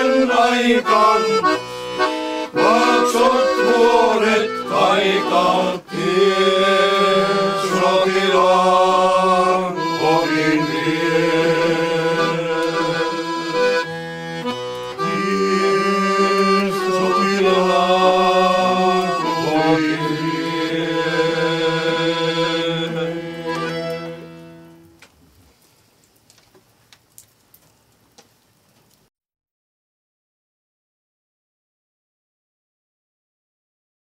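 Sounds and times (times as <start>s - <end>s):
men singing together: 0.0s - 1.6s, 2.5s - 13.4s, 15.0s - 23.6s
instrumental accompaniment: 0.0s - 25.2s.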